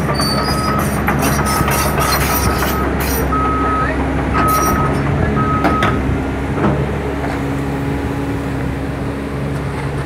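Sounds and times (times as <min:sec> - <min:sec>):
diesel excavator engine droning: 0:00.0 - 0:10.0.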